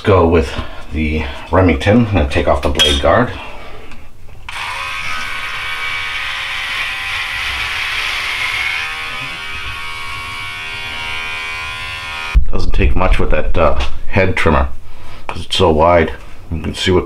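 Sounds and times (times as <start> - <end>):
hair clipper buzzing: 4.5 - 12.4.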